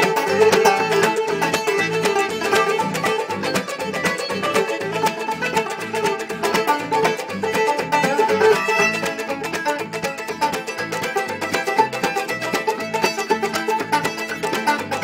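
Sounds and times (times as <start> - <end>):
banjo: 0.0 - 15.0
fiddle: 0.0 - 15.0
guitar: 0.0 - 15.0.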